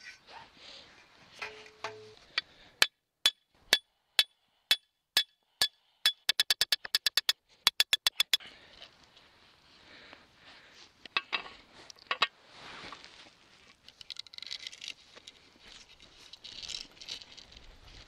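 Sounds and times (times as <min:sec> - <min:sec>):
hammer striking metal stake: 0:01.4 - 0:08.4.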